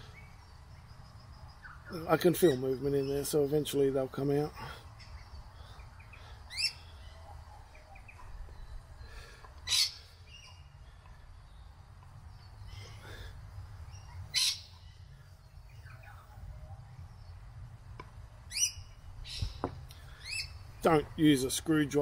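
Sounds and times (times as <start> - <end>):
faint bird chirps: 0.0 - 3.6, 4.5 - 17.5
loud high bird call: 9.6 - 10.6, 14.0 - 15.1.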